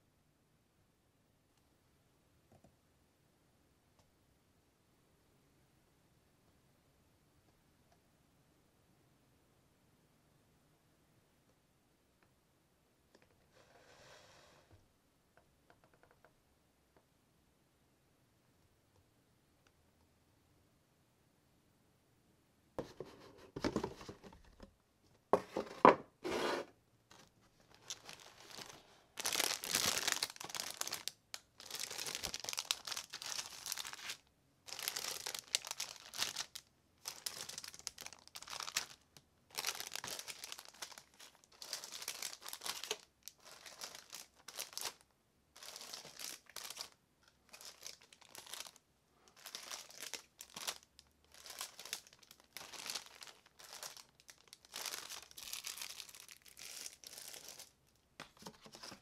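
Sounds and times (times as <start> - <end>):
plastic bags crinkling: 27.1 - 45.0, 45.6 - 59.0.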